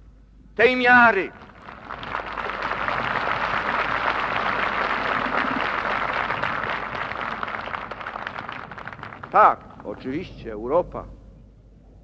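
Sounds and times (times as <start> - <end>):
crowd applauding: 1.4 - 9.9.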